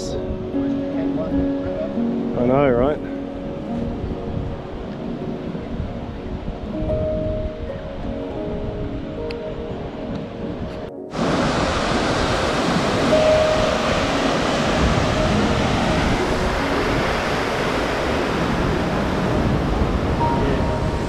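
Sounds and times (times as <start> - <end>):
river water rushing: 11.1 - 21.0.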